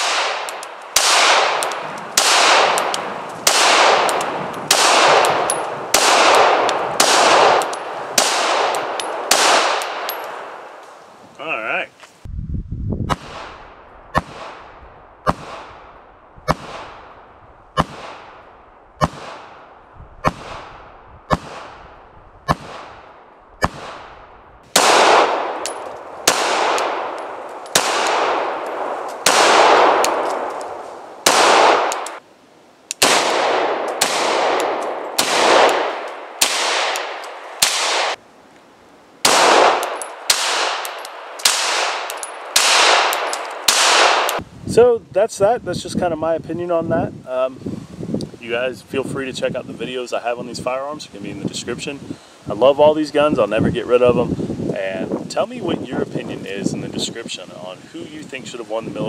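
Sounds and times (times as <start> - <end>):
gunshot echo: 0.0 - 10.6, 13.1 - 17.2, 17.8 - 30.6, 31.2 - 32.2, 33.0 - 38.2, 39.2 - 44.4
pistol shots: 0.0 - 10.6, 13.1 - 15.9, 16.5 - 17.1, 17.8 - 21.8, 22.5 - 32.2, 33.0 - 38.2, 39.2 - 44.4.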